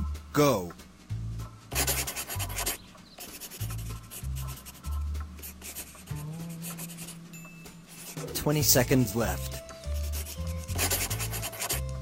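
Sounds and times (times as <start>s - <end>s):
background music with bass line: 0.0s - 12.0s
scribbling on paper: 1.7s - 7.2s, 7.9s - 8.5s, 9.1s - 12.0s.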